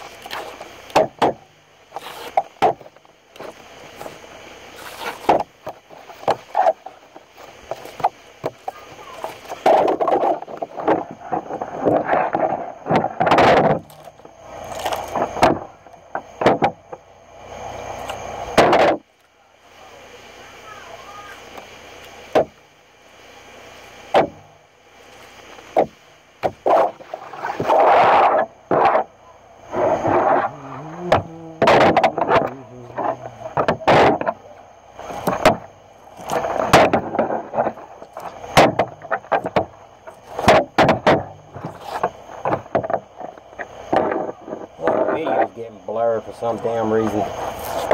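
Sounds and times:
scraping and pulling fish skin: 0.0 - 1.0, 1.9 - 2.6, 3.3 - 12.6, 13.8 - 15.7, 47.4 - 47.9.

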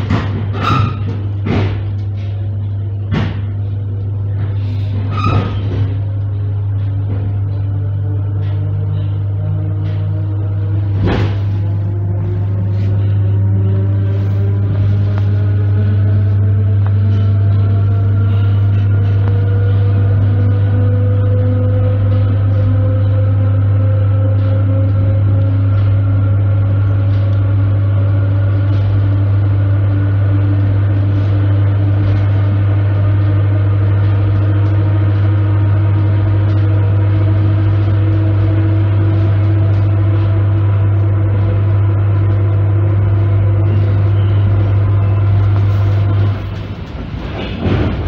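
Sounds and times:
traction motor whine: 0.0 - 48.0
train interior deep hum: 0.0 - 48.0.

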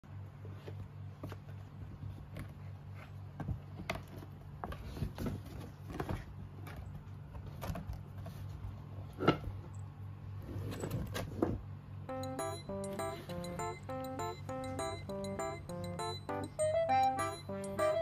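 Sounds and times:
steady low hum: 0.0 - 18.0
kittens pawing at cardboard: 0.4 - 9.2.

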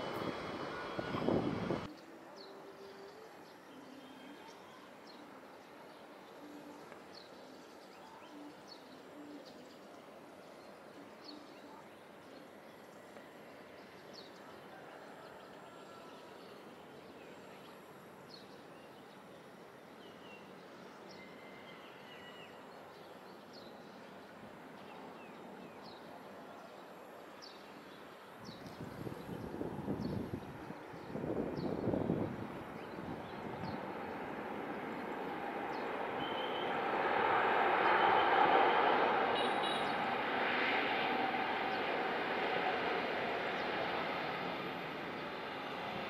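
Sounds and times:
jet aircraft engine noise: 0.0 - 1.9, 28.7 - 46.0.

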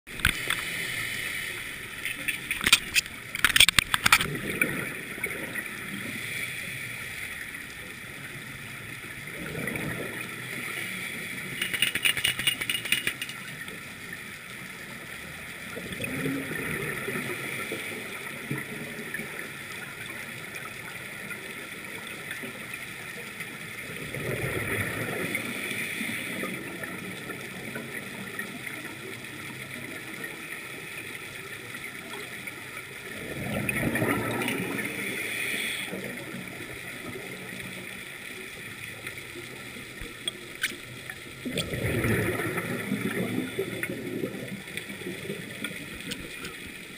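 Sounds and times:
steady hiss: 0.3 - 3.4, 34.8 - 36.0
rattle of quick clicks: 11.5 - 13.4
scuba exhaust bubbles: 23.8 - 46.9.

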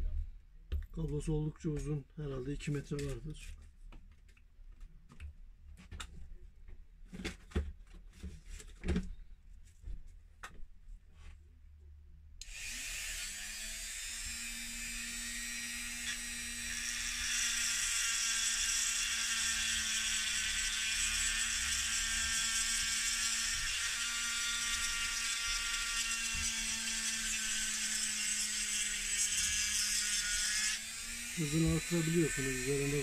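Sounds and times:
rotary tool whining: 12.4 - 33.0.

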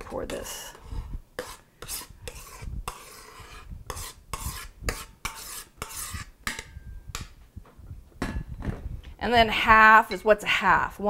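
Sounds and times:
spoon scraping cream from bowl: 0.2 - 6.7.

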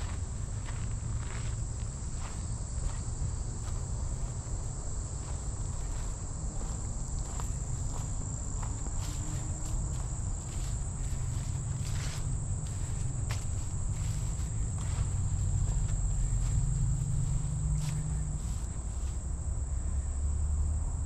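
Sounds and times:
footsteps through grass: 3.6 - 19.3
low rumble: 9.8 - 19.8.

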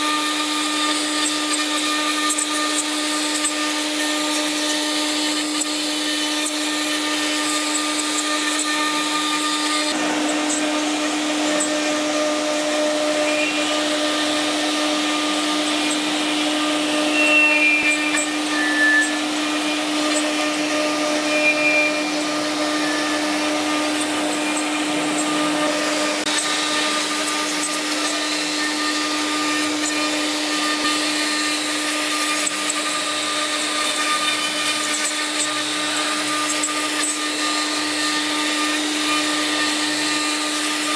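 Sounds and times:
router spindle whine: 0.0 - 40.9
short high-pitched tones: 17.1 - 19.2, 21.2 - 23.2.

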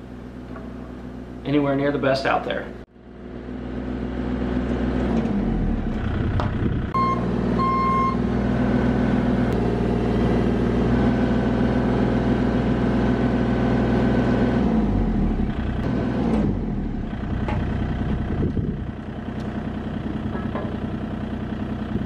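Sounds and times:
diesel engine running: 0.0 - 22.0
short electronic beeps: 7.0 - 8.2.

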